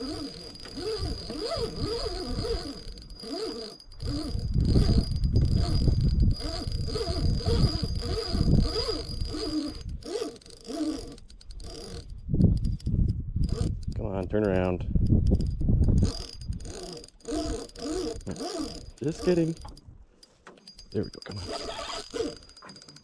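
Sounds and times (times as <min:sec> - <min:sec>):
fishing reel drag buzzing: 0:00.0 - 0:14.0, 0:14.9 - 0:23.0
wind rumble on microphone: 0:00.8 - 0:03.2, 0:04.0 - 0:10.1, 0:11.6 - 0:20.0.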